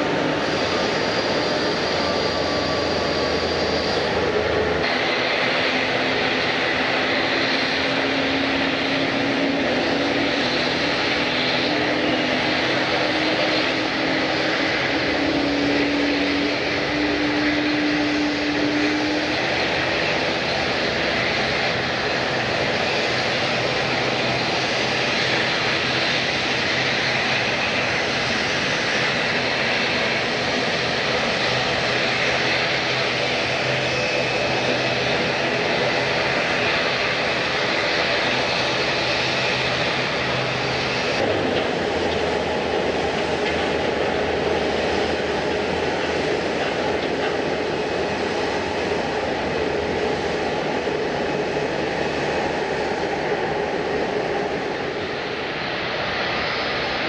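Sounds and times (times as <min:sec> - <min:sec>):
airliner engines rushing: 0:00.0 - 0:57.0.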